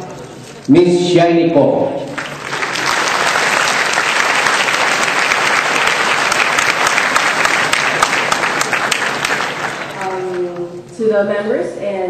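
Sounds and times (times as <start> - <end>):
audience clapping: 2.1 - 10.7.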